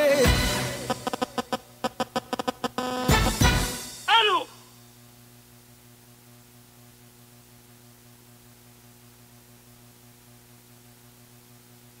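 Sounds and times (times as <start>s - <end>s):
electrical mains hum: 0.0s - 12.0s.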